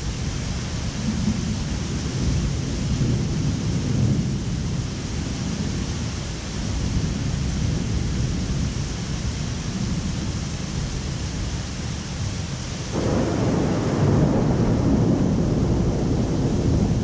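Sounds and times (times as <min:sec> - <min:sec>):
rain hissing: 0:00.0 - 0:17.0
thunder rumbling: 0:12.9 - 0:17.0.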